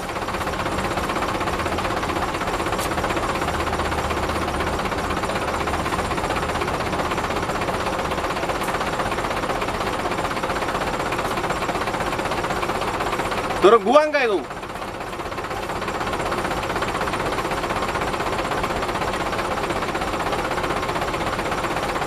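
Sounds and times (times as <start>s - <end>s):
diesel truck engine rattling: 0.0s - 22.0s.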